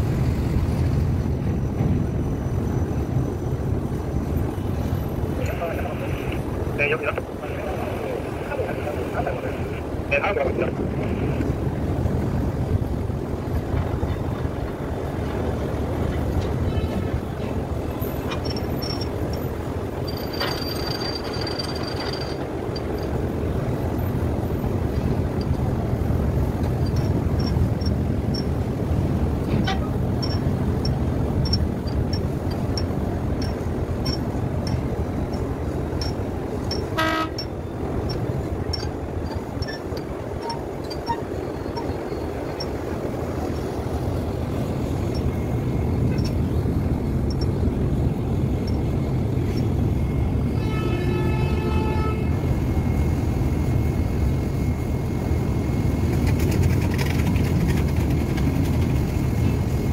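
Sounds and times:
low engine rumble: 0:00.0 - 0:59.9
faint regular ticking: 0:26.5 - 0:28.6, 0:30.2 - 0:49.8.

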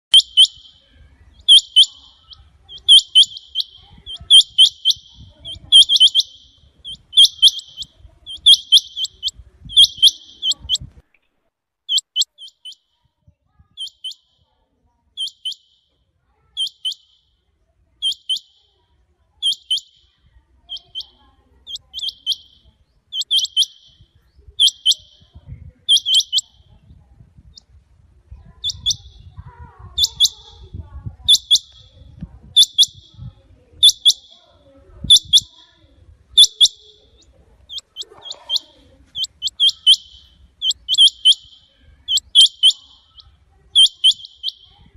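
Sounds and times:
quail calling: 0:00.0 - 0:00.8, 0:01.4 - 0:10.9, 0:11.9 - 0:12.8, 0:13.8 - 0:14.2, 0:16.6 - 0:17.1, 0:19.4 - 0:19.9, 0:20.7 - 0:24.0, 0:24.6 - 0:26.6, 0:28.5 - 0:29.1, 0:30.0 - 0:30.6, 0:31.3 - 0:31.9, 0:32.6 - 0:33.2, 0:33.8 - 0:34.4, 0:35.0 - 0:35.6, 0:36.3 - 0:44.9.

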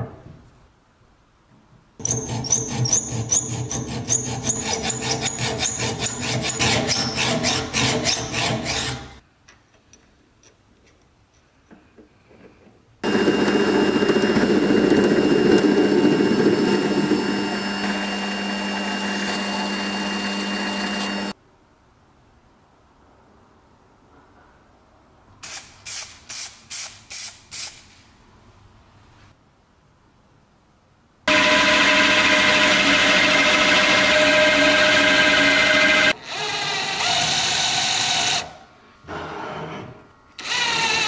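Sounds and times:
hand tool rasping: 0:02.0 - 0:09.1
power tool running: 0:13.0 - 0:21.4, 0:31.3 - 0:38.5, 0:40.4 - 0:41.0.

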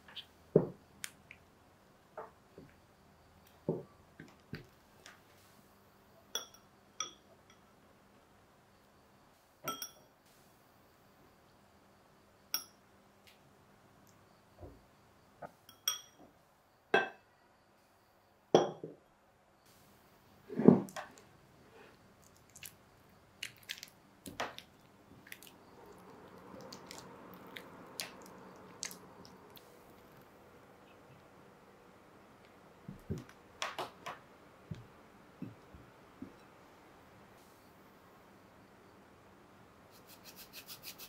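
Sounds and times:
spatula clinking against glass bowl: 0:09.7 - 0:10.0
soft squishy stirring: 0:22.2 - 0:30.3.

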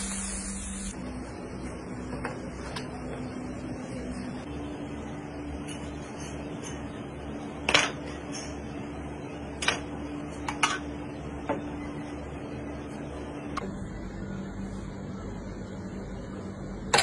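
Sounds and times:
steady hum: 0:00.0 - 0:07.6.

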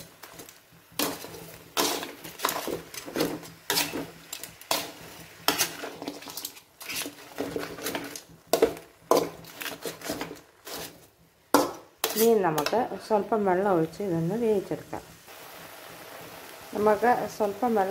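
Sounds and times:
metal spatula scraping metal pan: 0:00.0 - 0:13.2.

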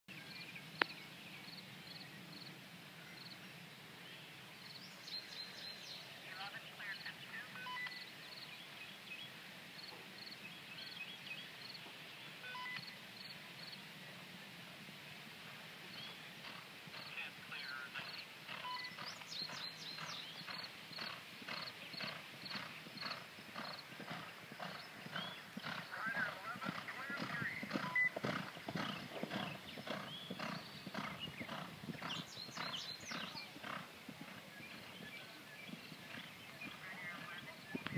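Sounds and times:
small birds chirping: 0:00.1 - 0:13.8, 0:15.8 - 0:37.9
hoofbeats clip-clop: 0:14.8 - 0:37.9.

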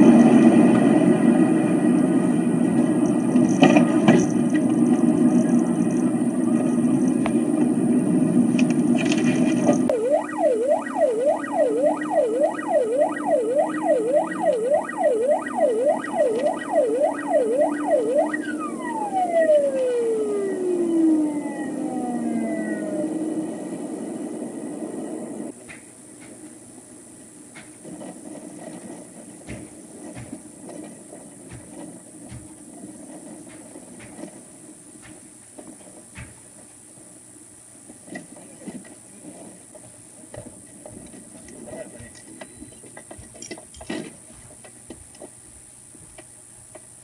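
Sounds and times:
car engine and road noise: 0:00.0 - 0:47.0
police siren yelping: 0:09.8 - 0:25.5.

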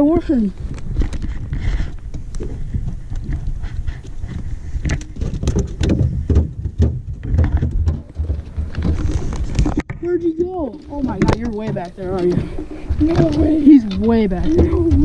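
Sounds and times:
wind rumble: 0:00.0 - 0:15.0
handling clicks and knocks: 0:04.8 - 0:15.0.

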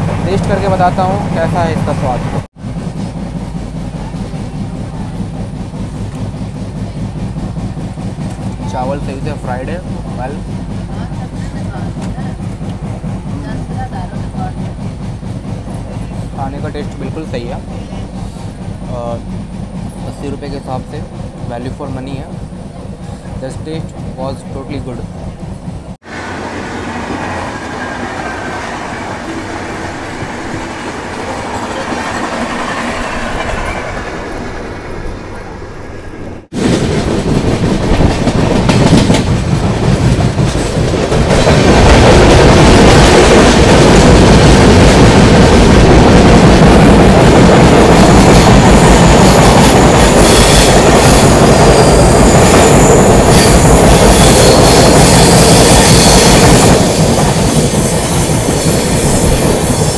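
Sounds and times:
train wheels rumbling on track: 0:00.0 - 0:59.9.

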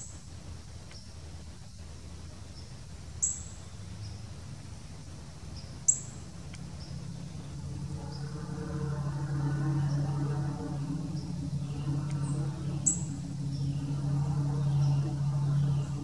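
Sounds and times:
low steady hum: 0:00.0 - 0:16.0
bird chip notes: 0:05.9 - 0:16.0.

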